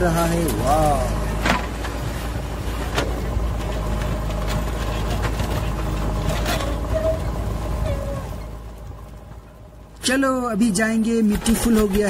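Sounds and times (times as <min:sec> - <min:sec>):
sand and gravel scraping: 0:00.0 - 0:08.5.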